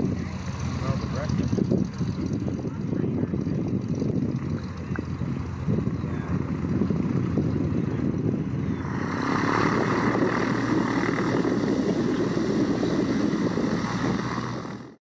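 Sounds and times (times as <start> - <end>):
light aircraft engine and propeller: 0.0 - 15.0.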